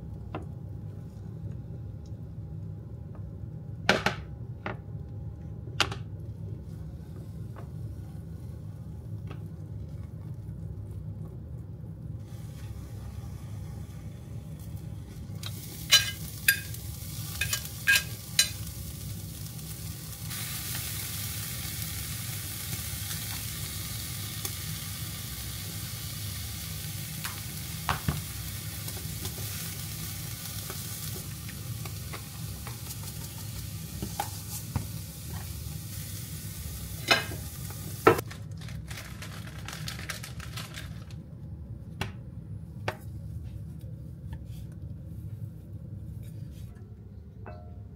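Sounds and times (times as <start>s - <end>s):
food sizzling in a pan: 12.2s - 38.2s.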